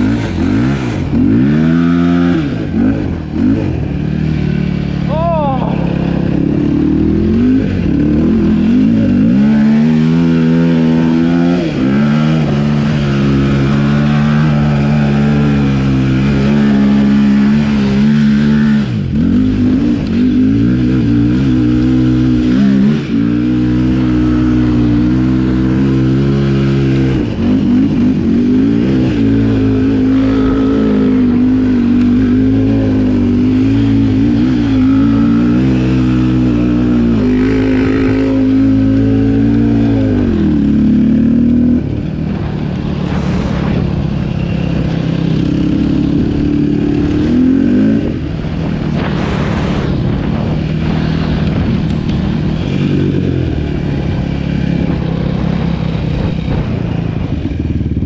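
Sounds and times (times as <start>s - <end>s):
quad bike engine revving: 0.0s - 58.0s.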